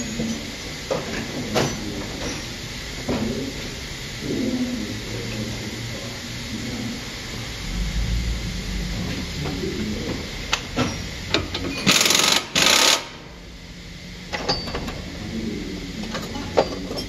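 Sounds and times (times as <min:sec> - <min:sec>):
pneumatic impact wrench: 0:10.8 - 0:13.2.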